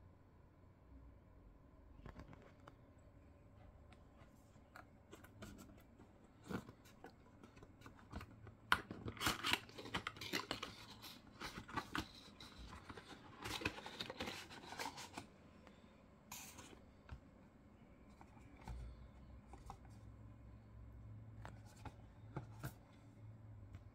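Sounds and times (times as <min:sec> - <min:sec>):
paper and plastic tearing: 0:08.1 - 0:15.2.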